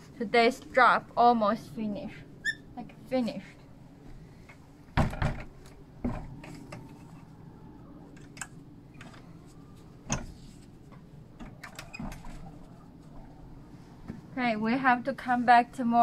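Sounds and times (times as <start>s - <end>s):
wooden door knocks: 5.0s - 6.3s.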